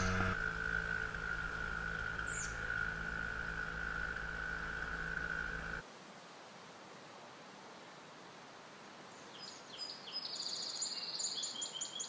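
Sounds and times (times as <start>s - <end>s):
small outboard motor running: 0.0s - 5.8s.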